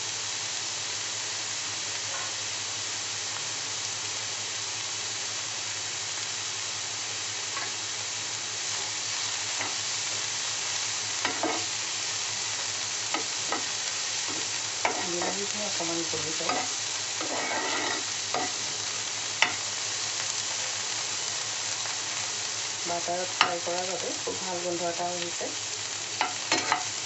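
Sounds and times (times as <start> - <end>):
vegetables sizzling in a pan: 0.0 - 27.0
spatula scraping a pan: 11.2 - 11.7, 13.1 - 15.5, 16.4 - 18.8, 26.2 - 27.0.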